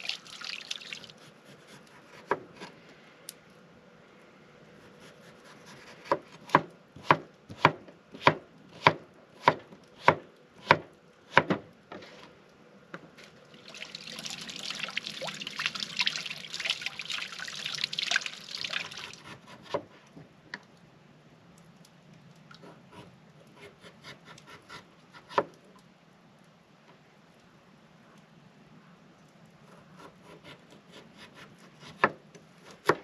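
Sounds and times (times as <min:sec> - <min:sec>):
knife chopping on wooden board: 0:05.6 - 0:11.6.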